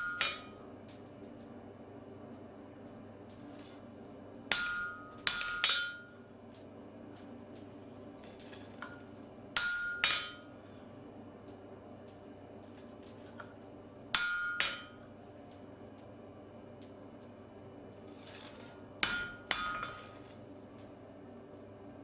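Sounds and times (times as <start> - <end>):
hammer striking metal on anvil: 0.0 - 0.7, 4.5 - 6.2, 9.6 - 10.7, 14.1 - 15.1, 18.6 - 20.3.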